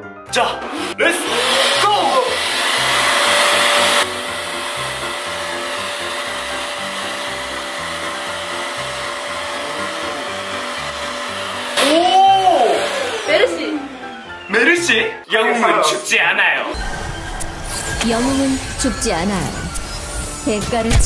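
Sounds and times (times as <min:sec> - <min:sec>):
vacuum cleaner running: 0:00.5 - 0:14.4.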